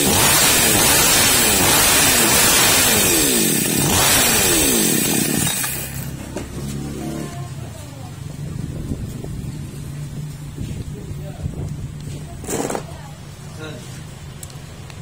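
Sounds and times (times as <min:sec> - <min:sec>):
chainsaw engine revving and idling: 0:00.0 - 0:07.3.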